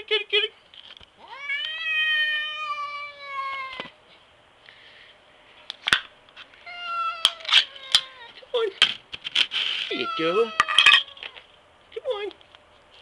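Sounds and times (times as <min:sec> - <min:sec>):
cat yowling: 0:01.2 - 0:03.9, 0:06.7 - 0:08.4, 0:09.9 - 0:11.4.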